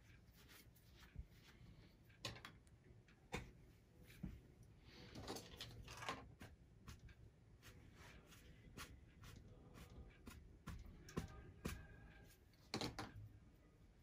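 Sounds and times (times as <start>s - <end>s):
paint brush strokes on canvas: 0.0s - 2.0s, 6.4s - 12.5s.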